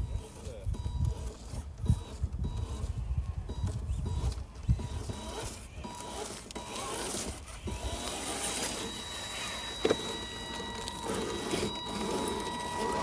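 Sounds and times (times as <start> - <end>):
electric motor whining: 0.0 - 13.0.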